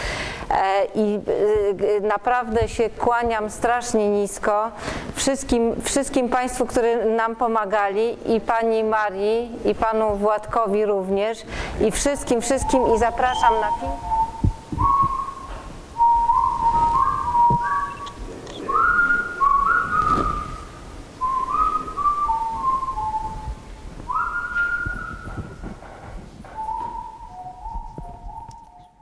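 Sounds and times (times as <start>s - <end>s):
person whistling slow tune: 12.6s - 25.7s, 26.6s - 29.0s.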